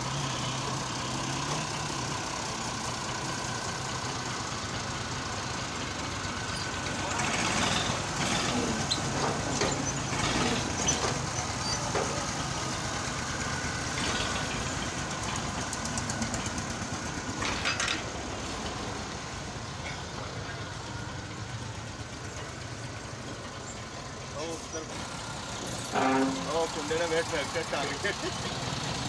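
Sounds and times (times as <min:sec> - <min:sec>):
engine idling: 0:00.0 - 0:29.0
knocks and clatter: 0:06.7 - 0:12.8, 0:13.9 - 0:18.9.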